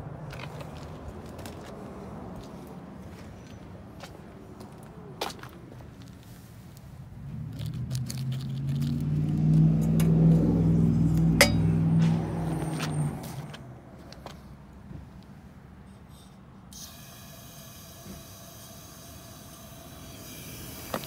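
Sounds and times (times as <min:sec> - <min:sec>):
vehicle engine passing by: 0:06.9 - 0:14.6
sharp clink: 0:11.4 - 0:11.8.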